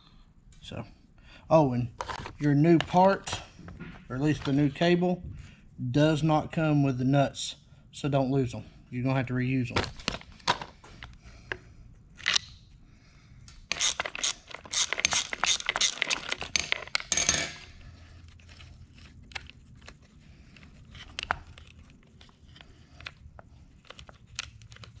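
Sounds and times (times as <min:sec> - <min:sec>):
socket ratchet clicking: 0:13.7 - 0:16.7.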